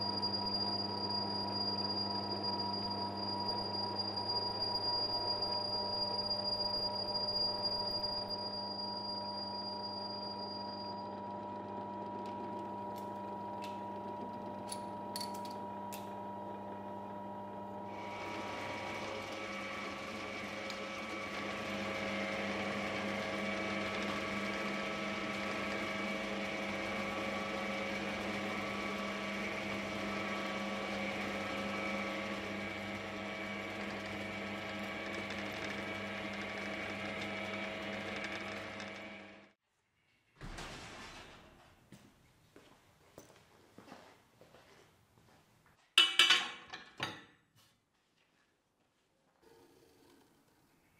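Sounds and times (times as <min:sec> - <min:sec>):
drill press drilling metal: 0:00.0 - 0:39.5
metal lathe humming: 0:00.0 - 0:39.6.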